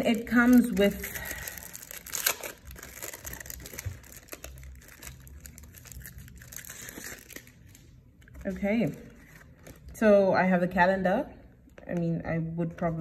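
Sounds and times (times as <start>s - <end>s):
paper and plastic crinkling: 0.0s - 10.0s.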